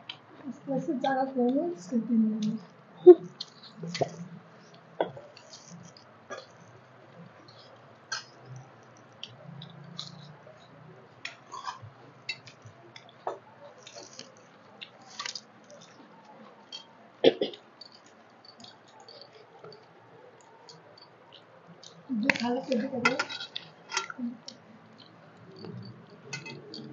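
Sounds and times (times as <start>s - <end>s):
chewing and lip smacks: 3.2s - 22.8s
clicks and knocks on plates: 25.7s - 26.9s.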